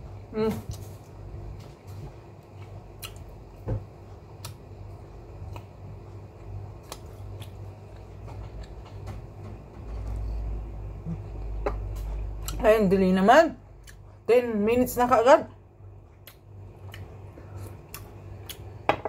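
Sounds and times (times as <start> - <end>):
steady low hum: 0.0 - 19.0
chewing clicks and smacks: 2.6 - 3.3, 16.2 - 17.1.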